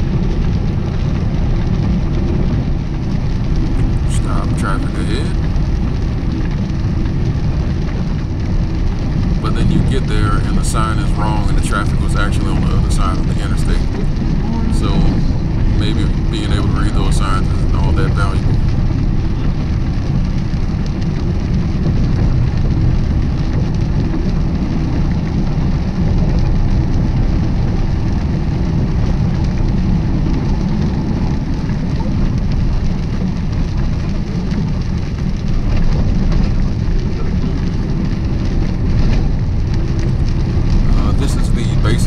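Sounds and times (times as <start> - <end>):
rain: 0.0 - 42.0
truck engine and road rumble: 0.0 - 42.0
tires hissing on wet pavement: 26.2 - 42.0.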